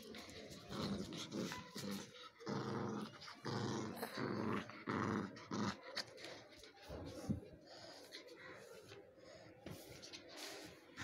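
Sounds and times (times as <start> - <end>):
small dog growling: 0.2 - 6.4.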